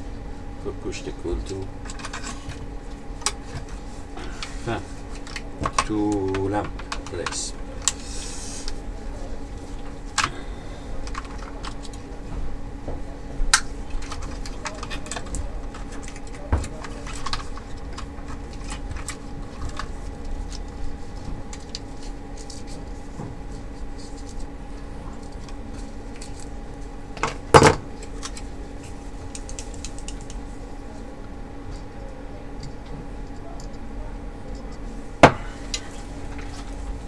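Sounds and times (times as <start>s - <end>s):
plastic parts clicking and rattling: 13.5s - 20.6s.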